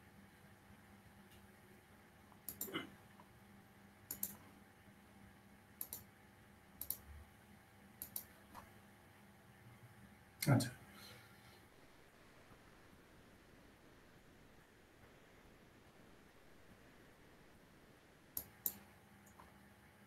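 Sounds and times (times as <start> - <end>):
computer mouse double clicks: 5.8 - 6.0, 6.8 - 7.0, 8.0 - 8.3.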